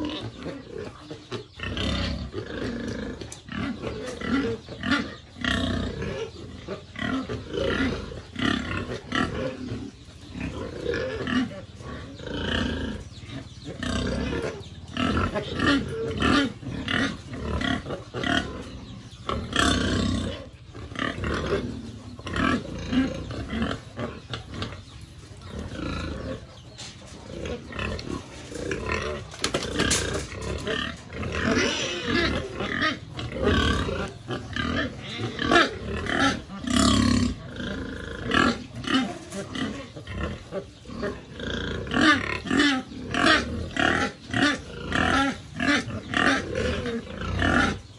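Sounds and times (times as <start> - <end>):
pigs grunting: 0.0 - 47.9
pigs squealing: 0.0 - 47.9.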